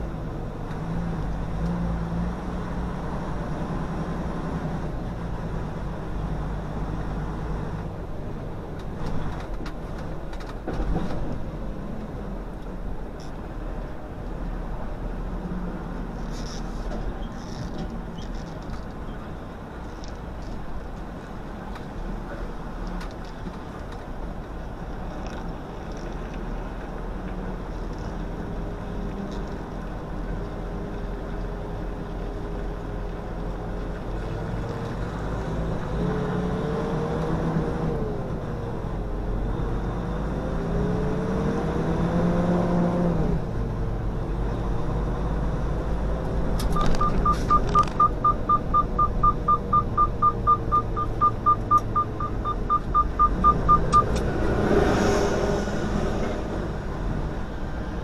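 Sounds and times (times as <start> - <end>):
rapid electronic beeping: 46.8 - 54.1.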